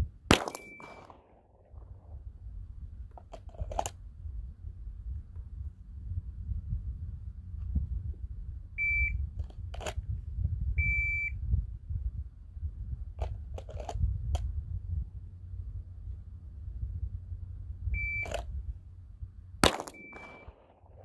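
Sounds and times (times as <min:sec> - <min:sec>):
low wind rumble: 0:00.0 - 0:21.0
sharp cracks: 0:00.3 - 0:01.9, 0:19.6 - 0:21.0
shot timer beeps: 0:00.5 - 0:01.1, 0:08.8 - 0:09.2, 0:10.8 - 0:11.4, 0:18.0 - 0:18.4, 0:19.8 - 0:20.6.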